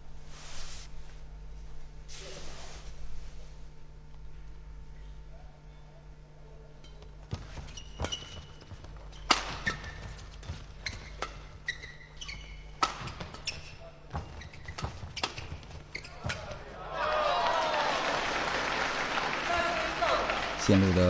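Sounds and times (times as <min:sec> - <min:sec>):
shoes squeaking on court: 0:06.8 - 0:16.8
rackets hitting shuttlecock: 0:06.9 - 0:10.0.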